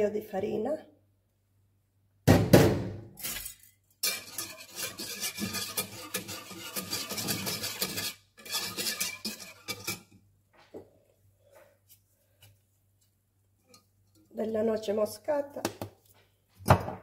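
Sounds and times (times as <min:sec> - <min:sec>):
whisk clinking against a pan: 0:04.0 - 0:10.2.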